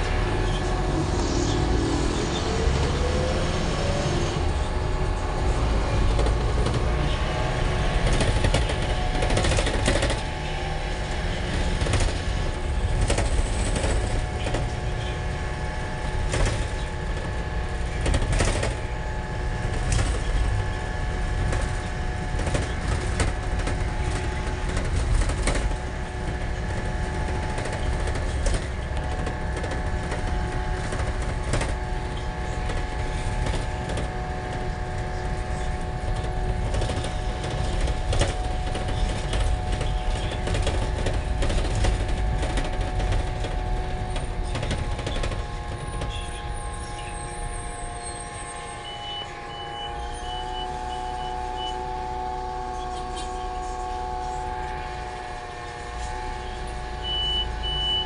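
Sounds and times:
minibus engine and road rumble: 0.0s - 58.0s
body and fittings rattling: 11.0s - 48.8s.

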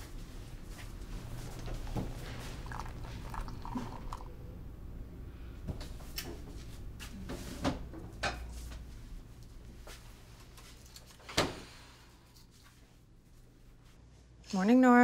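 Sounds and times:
low steady hum: 0.0s - 11.2s.

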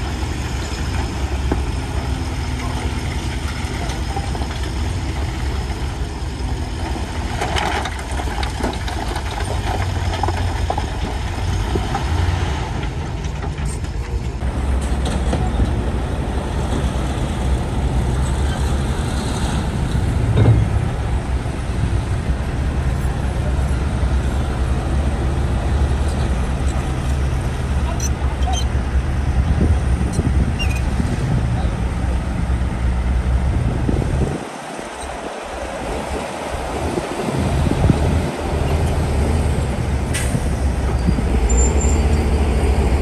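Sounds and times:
diesel engine rumbling: 0.0s - 43.0s
machine knocks and clanks: 20.3s - 21.0s.

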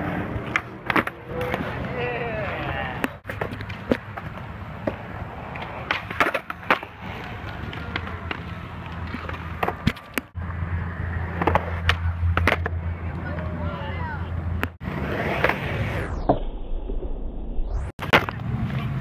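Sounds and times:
skateboards clacking on concrete: 0.0s - 10.4s, 11.2s - 14.8s
skateboard wheels rolling on concrete: 0.0s - 17.1s, 17.7s - 19.0s.

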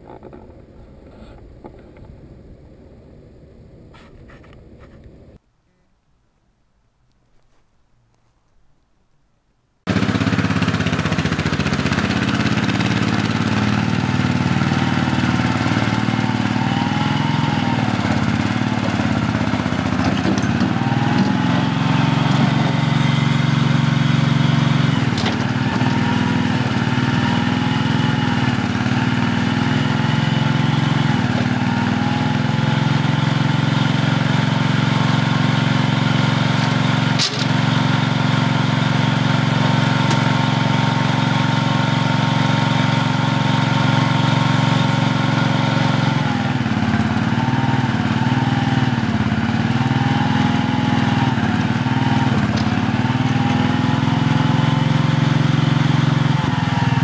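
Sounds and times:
loader engine running with whine: 9.9s - 57.0s
sharp metal clank: 36.5s - 37.6s.

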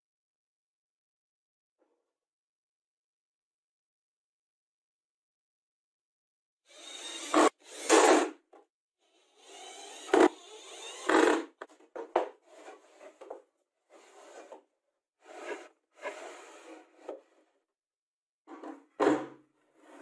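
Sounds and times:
cordless drill driving screws: 6.7s - 8.3s, 9.1s - 11.7s.

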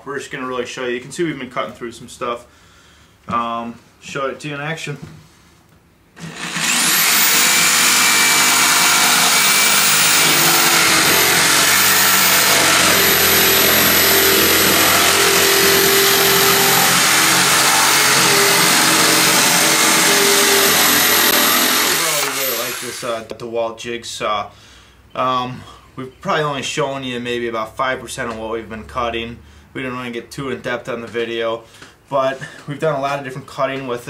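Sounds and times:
jigsaw cutting plywood: 6.2s - 23.2s.

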